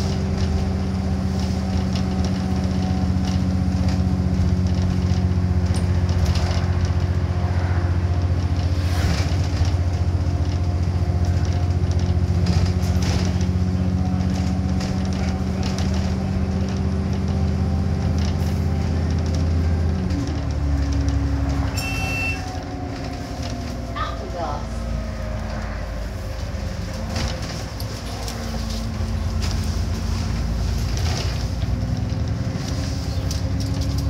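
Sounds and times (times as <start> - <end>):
bus engine running: 0.0 - 34.0
short high-pitched beep: 21.8 - 22.4.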